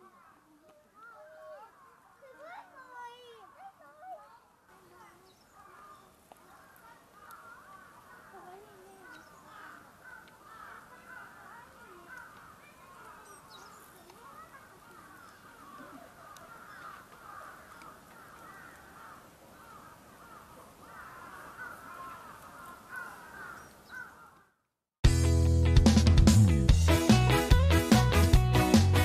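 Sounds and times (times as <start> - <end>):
birds chattering: 0.0 - 24.5
loud music with guitar and drums: 25.0 - 29.0.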